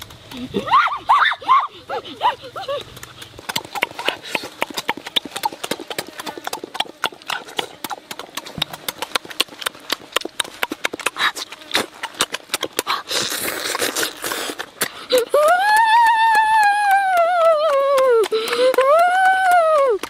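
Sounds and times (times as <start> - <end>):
wet chewing and lip-smacking: 1.7 - 20.0
sucking hiss: 12.8 - 15.4.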